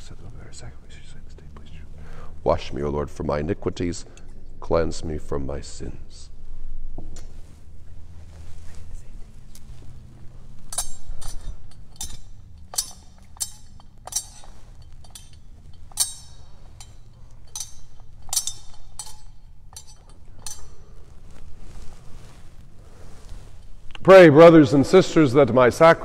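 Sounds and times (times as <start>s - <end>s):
metal vessels clinking: 10.6s - 21.3s.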